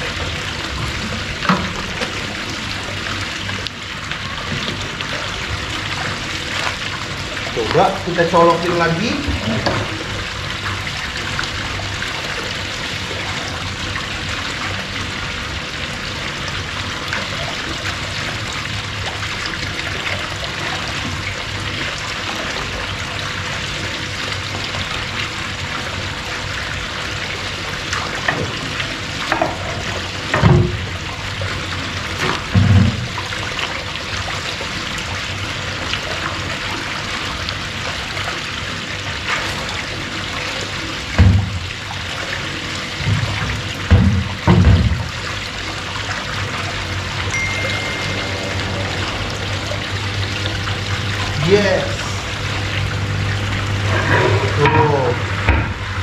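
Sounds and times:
water splashing into pond: 0.0s - 8.2s, 9.0s - 55.8s
faint steady hum: 46.4s - 56.0s.

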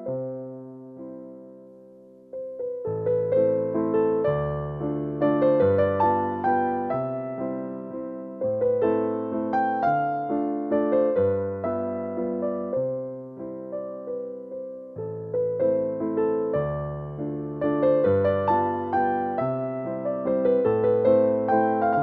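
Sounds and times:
electric piano melody: 0.0s - 22.0s.

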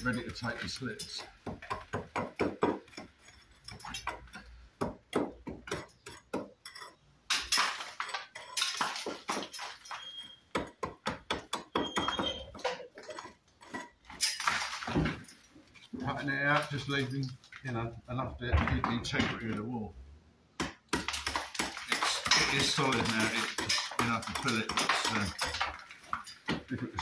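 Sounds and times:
hammer striking brick: 1.2s - 3.1s, 4.8s - 6.6s, 10.5s - 12.5s, 20.6s - 27.0s.

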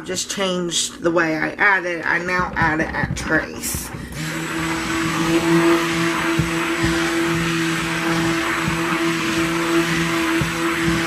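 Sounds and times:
stick blender running: 2.3s - 11.0s.

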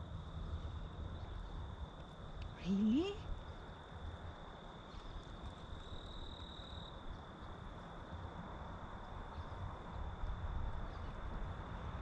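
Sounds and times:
high-pitched insect trill: 5.6s - 7.1s.

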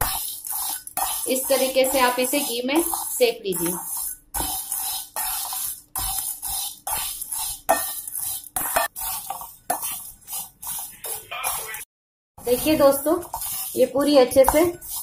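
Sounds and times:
dry chips rattling in a pan: 0.0s - 10.9s
metal spatula scraping a pan: 0.0s - 15.0s.

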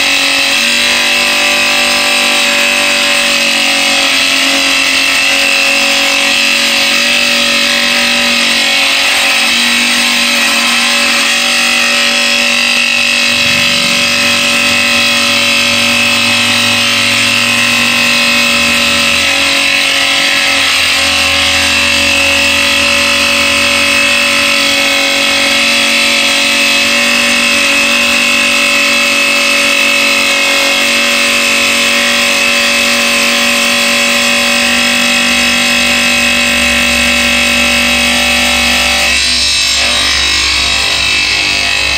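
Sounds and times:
tile saw whining: 0.0s - 41.9s
low hum: 12.5s - 19.6s, 20.6s - 25.7s.

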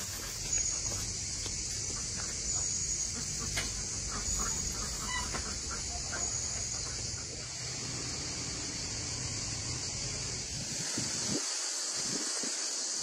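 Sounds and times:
steady high-pitched hiss: 0.0s - 13.0s
chickens clucking: 1.6s - 7.5s.

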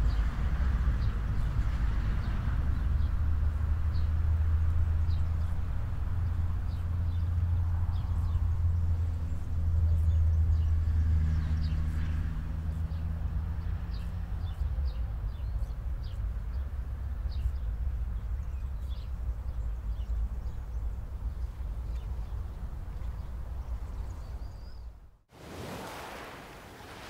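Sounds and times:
small birds chirping: 11.3s - 25.1s.

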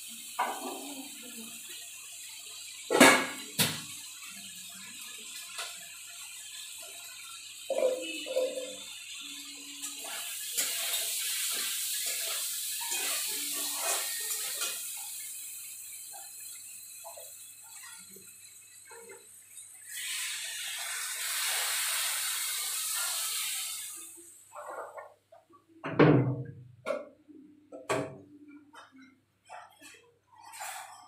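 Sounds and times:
water poured into hot wok: 0.0s - 24.8s
frying hiss: 0.0s - 25.8s, 26.8s - 31.0s
spatula scraping a steel wok: 9.9s - 14.9s, 29.5s - 31.0s.

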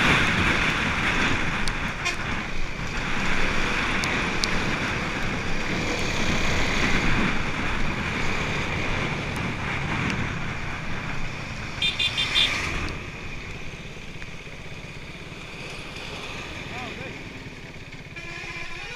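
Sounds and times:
motorcycle engine and road noise: 0.0s - 18.9s
vehicle horn short toots: 11.8s - 12.6s.

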